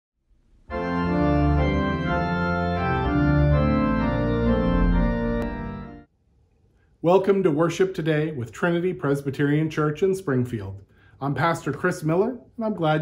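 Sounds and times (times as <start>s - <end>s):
organ chords: 0.5s - 6.1s.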